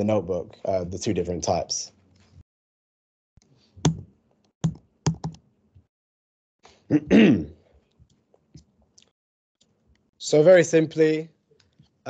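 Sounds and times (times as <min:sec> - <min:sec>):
man's voice: 0:00.0 - 0:01.9
laptop keys pressed: 0:04.6 - 0:05.4.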